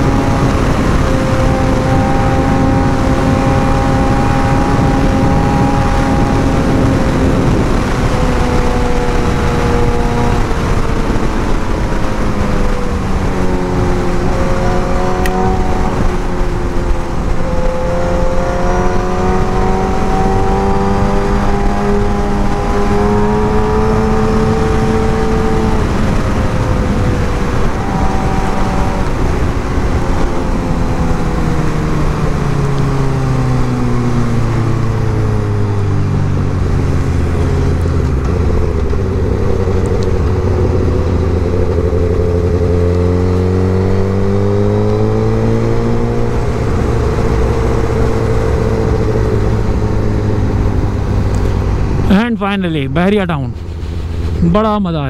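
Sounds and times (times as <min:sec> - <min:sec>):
wind and road noise: 0:00.0 - 0:55.0
motorcycle engine running: 0:33.6 - 0:52.4, 0:53.5 - 0:55.0.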